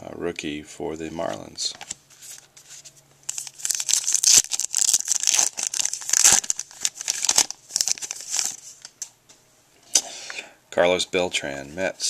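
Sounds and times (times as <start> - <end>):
foil wrapper tearing and crinkling: 3.3 - 8.7.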